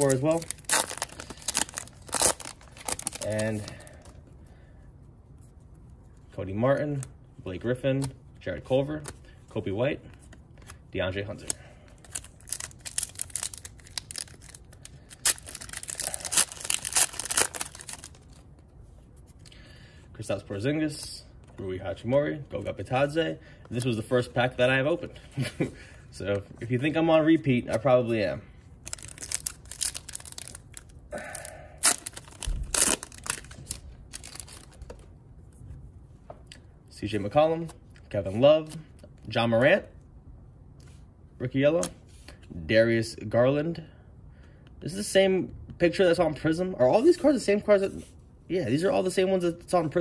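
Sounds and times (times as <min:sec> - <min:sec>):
plastic wrapper crinkling and tearing: 0:00.0 - 0:04.1, 0:11.4 - 0:18.5, 0:28.8 - 0:35.0.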